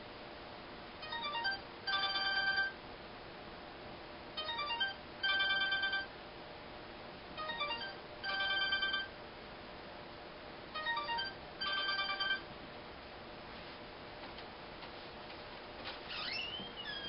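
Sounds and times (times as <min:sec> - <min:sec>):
phone ringtone melody: 0:01.0 - 0:02.8, 0:04.4 - 0:06.1, 0:07.4 - 0:09.1, 0:10.8 - 0:12.5.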